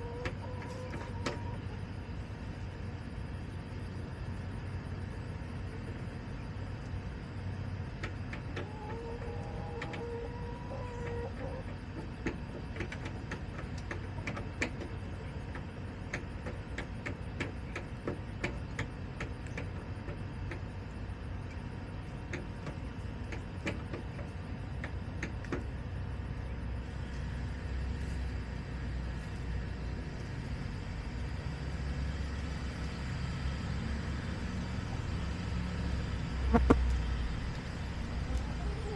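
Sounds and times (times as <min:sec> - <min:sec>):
vehicle engine drone: 0:00.0 - 0:38.9
sharp ticks and taps: 0:12.0 - 0:20.7
steady low rumble: 0:12.1 - 0:38.9
hen calling: 0:36.4 - 0:36.9, 0:38.1 - 0:38.9.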